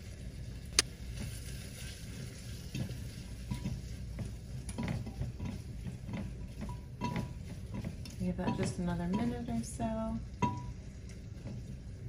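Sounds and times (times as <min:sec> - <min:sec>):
garlic sizzling in butter: 0:00.0 - 0:12.0
spatula stirring in pot: 0:00.0 - 0:12.0.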